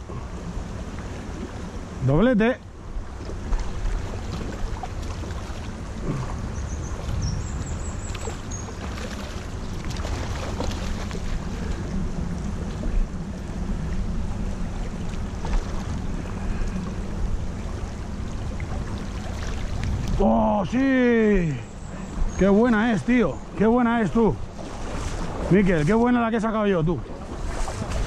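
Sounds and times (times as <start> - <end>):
wind buffeting microphone: 2.7 - 28.0
river running over stones: 8.0 - 17.6.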